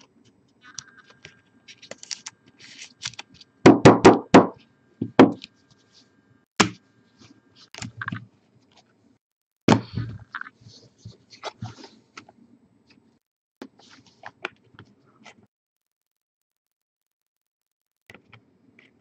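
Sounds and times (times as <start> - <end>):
plastic card holders knocking: 3.7 - 5.4.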